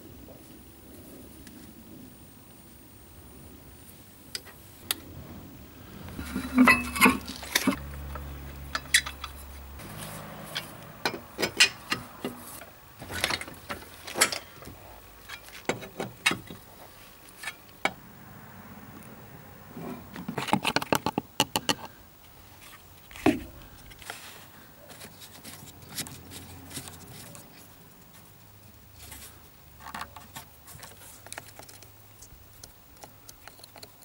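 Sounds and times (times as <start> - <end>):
low steady hum: 0.0 - 20.8
lug wrench clinking on wheel nuts: 6.2 - 16.6.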